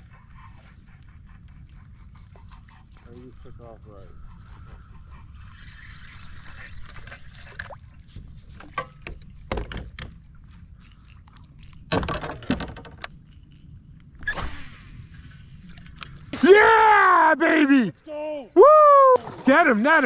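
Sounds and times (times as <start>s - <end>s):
water sloshing around kayak: 4.1s - 12.9s
gear clicks and knocks on hull: 8.5s - 10.2s, 11.6s - 13.2s.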